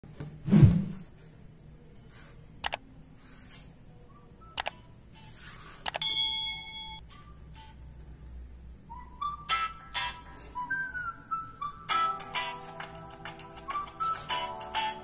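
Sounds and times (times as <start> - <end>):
mouse clicks: 4.6 - 4.8, 5.8 - 6.0
bell-like ding: 6.0 - 7.0.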